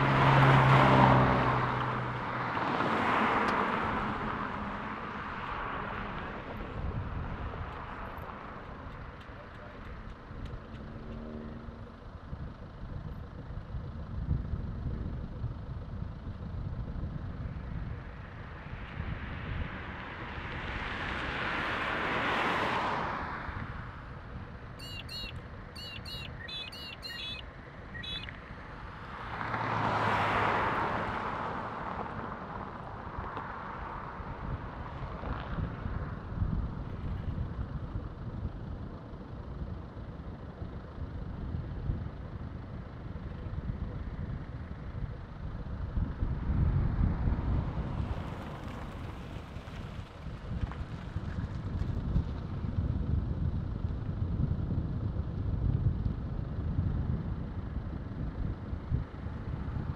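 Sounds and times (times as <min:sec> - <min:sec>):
passing vehicle noise: 0:00.0 - 0:59.9
steady low rumble: 0:03.7 - 0:21.6, 0:31.6 - 0:59.9
bird chirping: 0:24.8 - 0:28.4.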